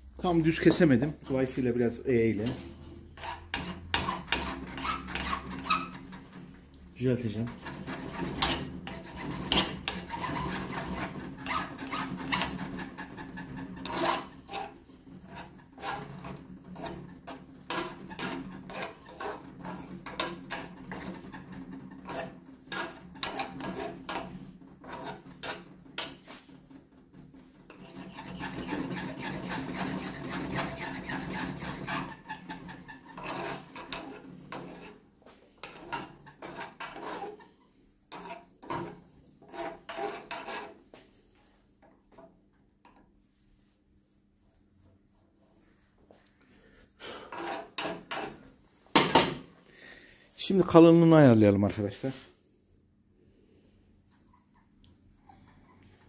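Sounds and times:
hand file rasping on pipe: 2.5s - 6.5s, 7.2s - 35.0s, 35.6s - 40.8s, 47.0s - 48.6s.

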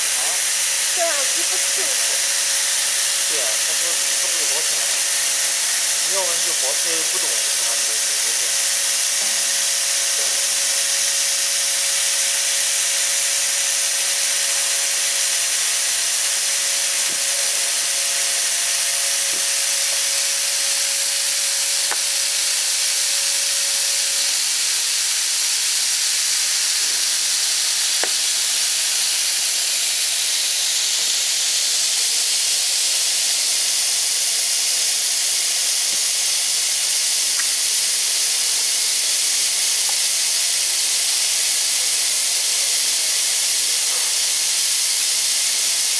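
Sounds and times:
steady humming tone: 0.0s - 31.7s
compressed air hissing: 0.0s - 45.9s.

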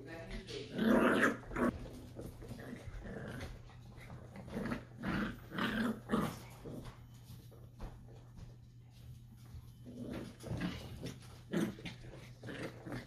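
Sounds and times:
puppies growling: 0.6s - 7.2s, 9.8s - 13.0s.

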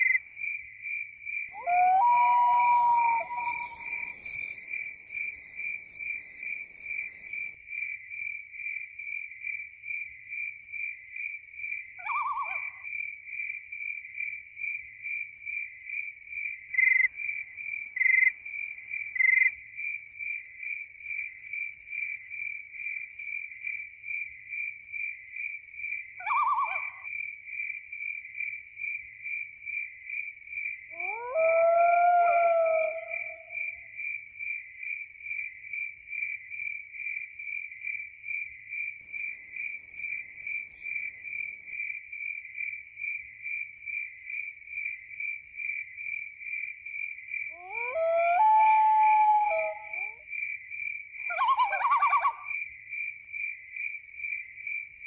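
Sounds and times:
crickets chirping: 0.0s - 55.0s
short animal call: 1.6s - 4.2s
long drawn-out howl: 1.6s - 4.3s, 30.9s - 33.7s, 47.6s - 50.2s.

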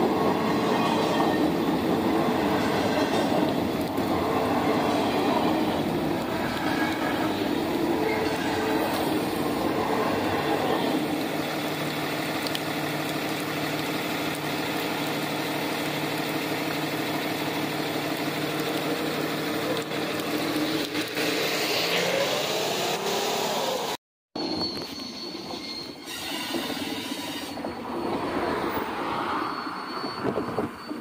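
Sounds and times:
train wheel squeal: 0.0s - 1.7s, 2.3s - 11.7s, 21.5s - 31.0s
diesel locomotive engine humming: 0.0s - 21.4s.

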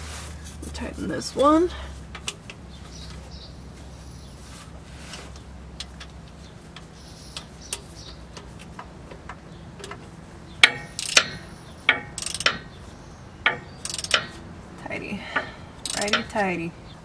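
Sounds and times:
ratchet wrench clicking: 10.6s - 12.8s, 13.4s - 14.4s, 15.8s - 16.4s.

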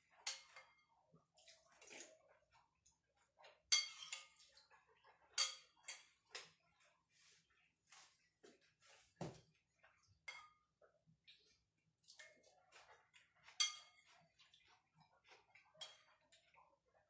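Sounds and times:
metal spoon scraping ceramic bowl: 13.5s - 14.3s.

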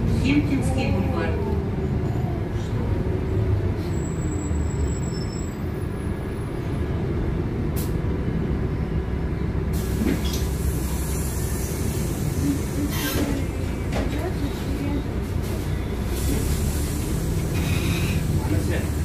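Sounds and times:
bus engine and road drone: 0.0s - 19.0s
hiss: 9.8s - 13.3s.

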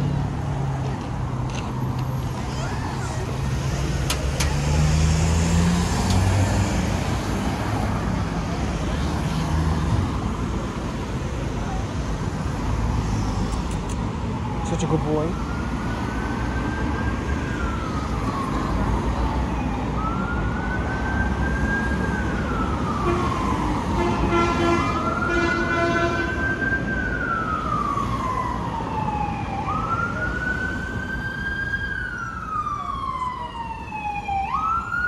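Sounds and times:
street traffic: 0.0s - 35.0s
emergency siren wailing: 13.9s - 35.0s
horn blasts: 24.0s - 26.3s.

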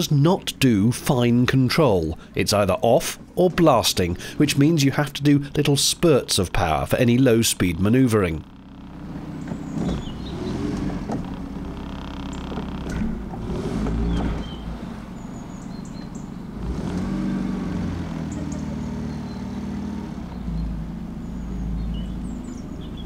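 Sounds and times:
outboard motor revving: 7.6s - 23.0s.

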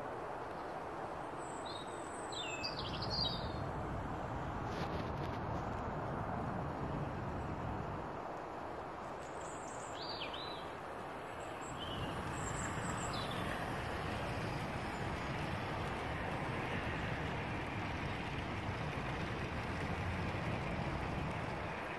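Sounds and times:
birds chirping: 9.4s - 16.2s
model train rolling rumble: 11.5s - 21.9s.

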